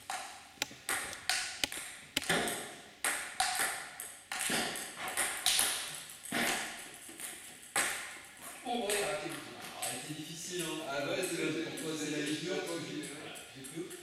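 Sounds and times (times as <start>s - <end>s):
ping-pong balls clicking: 0.0s - 9.9s.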